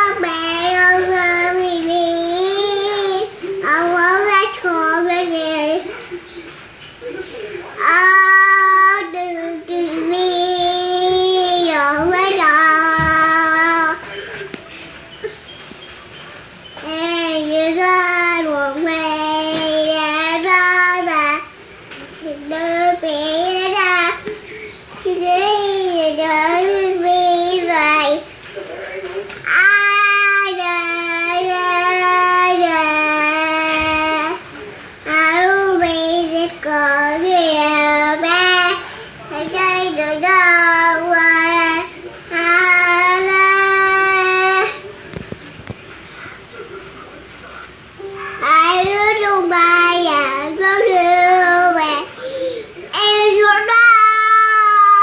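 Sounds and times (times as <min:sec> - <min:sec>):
toddler singing: 0:00.0 - 0:06.0, 0:07.8 - 0:14.1, 0:16.8 - 0:24.3, 0:25.0 - 0:28.2, 0:29.5 - 0:34.4, 0:35.1 - 0:44.8, 0:48.0 - 0:52.1, 0:53.0 - 0:55.0.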